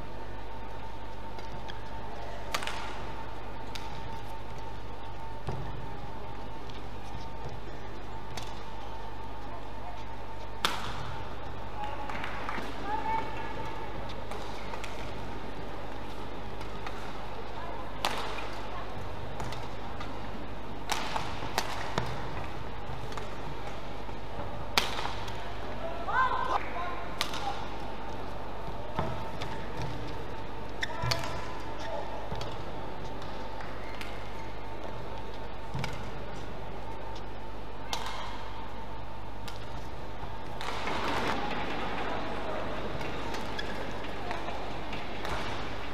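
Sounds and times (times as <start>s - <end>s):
sports hall background noise: 0.0s - 45.9s
rackets striking shuttlecock: 2.4s - 4.2s, 8.2s - 8.7s, 10.6s - 11.3s, 18.0s - 18.7s, 19.4s - 20.2s, 20.8s - 23.9s, 24.7s - 25.4s, 27.2s - 27.9s, 30.8s - 36.2s, 37.8s - 38.6s, 39.4s - 42.0s, 42.8s - 45.9s.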